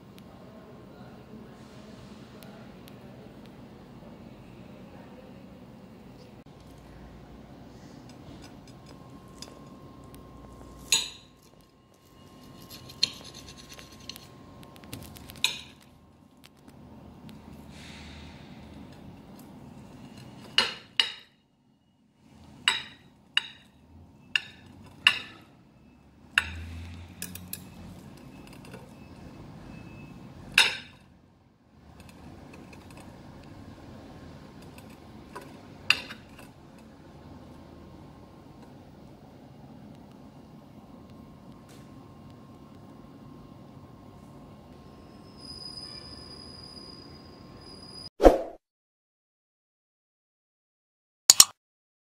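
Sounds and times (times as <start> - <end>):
low steady hum: 0.0 - 44.9
cutlery clinking on a plate: 24.4 - 25.5, 30.6 - 31.0, 34.6 - 36.5.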